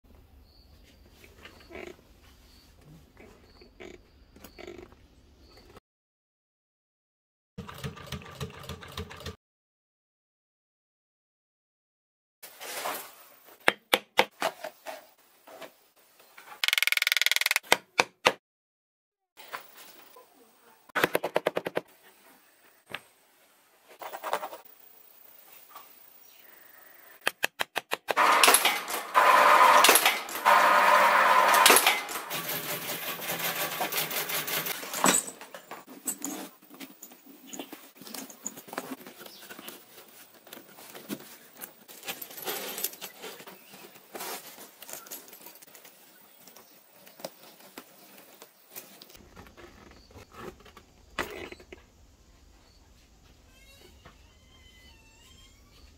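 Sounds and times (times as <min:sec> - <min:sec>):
sharp clicks: 0:16.6 - 0:18.1
loud steady rattle: 0:28.2 - 0:34.8
metal buckles clinking: 0:34.8 - 0:38.8.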